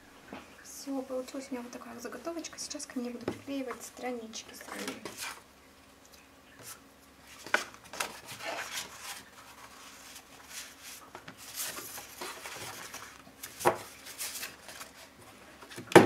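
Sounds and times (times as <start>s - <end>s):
paper sheets rustling: 4.5s - 5.4s, 6.6s - 15.9s.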